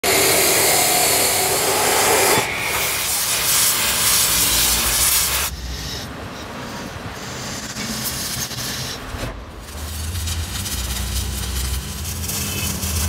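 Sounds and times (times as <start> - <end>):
chop saw cutting steel: 0.0 - 6.0
cutting torch hissing: 0.0 - 6.1, 6.8 - 13.0
lathe turning steel: 0.0 - 9.0.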